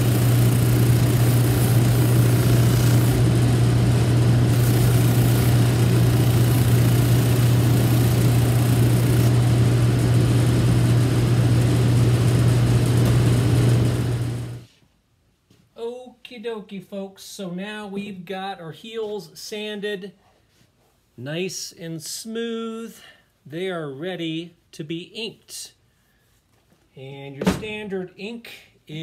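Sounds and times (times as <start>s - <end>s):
heel sanded on sanding wheel: 0.0s - 9.7s
machine motor hum: 0.0s - 14.6s.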